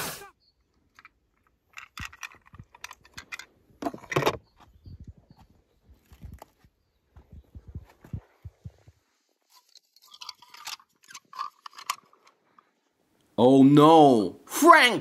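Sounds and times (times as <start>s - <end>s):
toy cars clattering over rocks: 0.8s - 4.5s, 9.5s - 12.7s.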